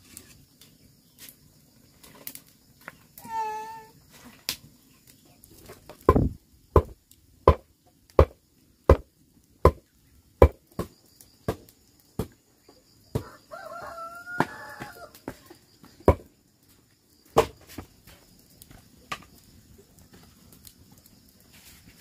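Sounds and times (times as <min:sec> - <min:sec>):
rooster crowing: 0:13.1 - 0:15.3.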